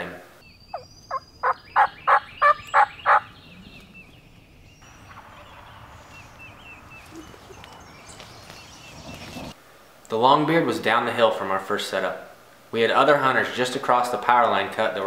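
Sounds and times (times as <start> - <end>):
small birds chirping: 0.4 - 9.6
turkey yelps: 1.4 - 3.3.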